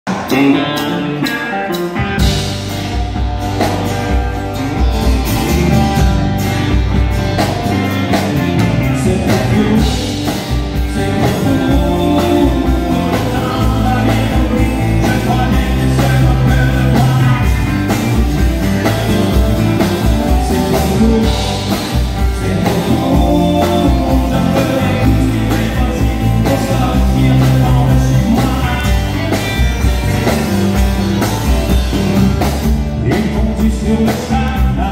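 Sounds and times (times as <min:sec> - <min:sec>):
bass guitar: 0:00.0 - 0:34.9
man singing: 0:00.1 - 0:01.6, 0:08.6 - 0:29.6, 0:32.8 - 0:34.9
acoustic guitar: 0:00.1 - 0:34.9
drum kit: 0:00.1 - 0:34.9
electric guitars: 0:00.1 - 0:34.9.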